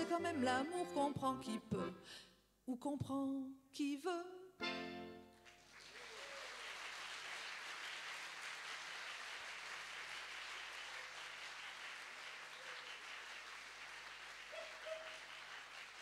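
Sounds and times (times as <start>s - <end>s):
accordion and vocal note: 0.0s - 2.2s, 4.6s - 5.3s
audience applauding: 5.3s - 16.0s.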